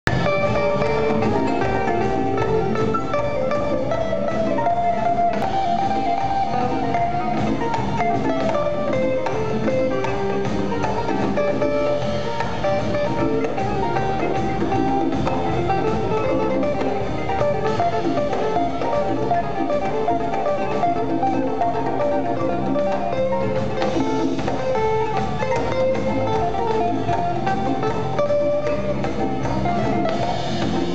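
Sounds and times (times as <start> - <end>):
hand drums: 0.0 - 30.9
plucked strings: 0.1 - 30.9.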